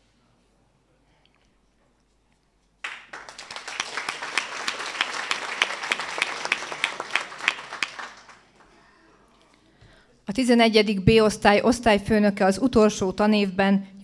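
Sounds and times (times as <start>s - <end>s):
single sharp claps: 2.8s - 8.5s
crowd applauding: 2.8s - 8.9s.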